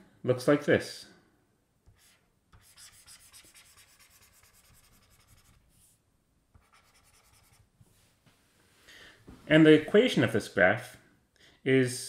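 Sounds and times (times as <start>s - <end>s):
stylus scratching on tablet screen: 1.9s - 7.7s.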